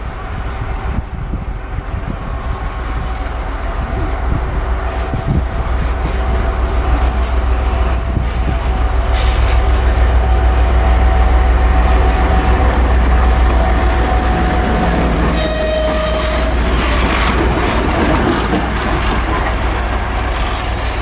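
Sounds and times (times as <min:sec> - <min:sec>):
diesel locomotive engine rumbling: 0:00.0 - 0:21.0.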